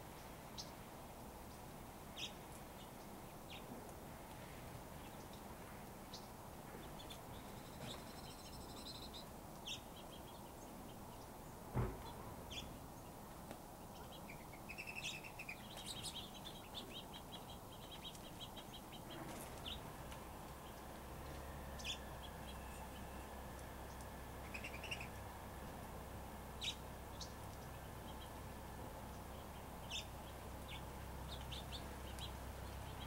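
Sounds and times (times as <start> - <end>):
finches chirping and twittering: 2.2 - 3.6, 6.1 - 11.3, 13.8 - 19.9, 20.6 - 25.2, 26.6 - 28.4, 29.0 - 33.0
short thump: 11.7 - 12.4.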